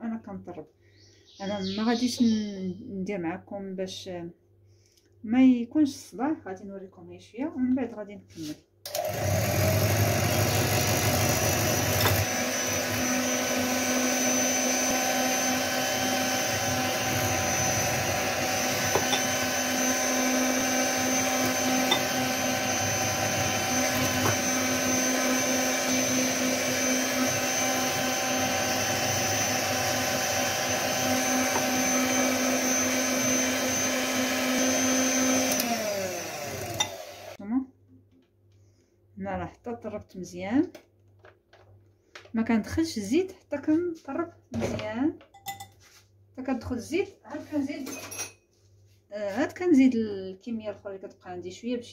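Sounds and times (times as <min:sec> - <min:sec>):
electric hand mixer whisking: 0:08.9 - 0:37.4.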